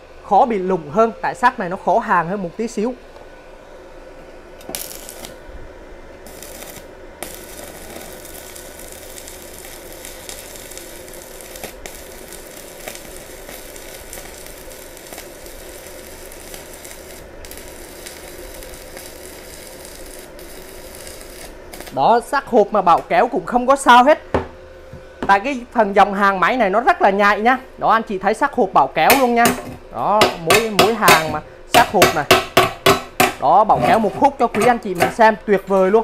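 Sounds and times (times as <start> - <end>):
welding arc crackling and sizzling: 4.6 - 5.5, 6.1 - 24.0, 28.9 - 36.0.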